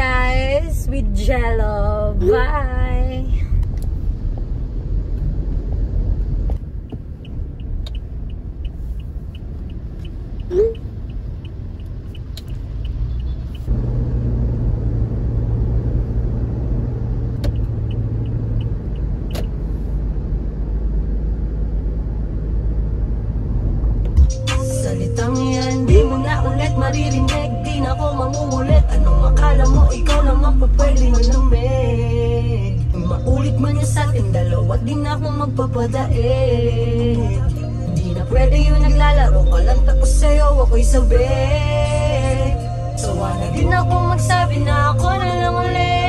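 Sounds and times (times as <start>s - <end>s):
road and engine rumble in car: 0.0s - 46.0s
light even ticks: 6.2s - 13.7s.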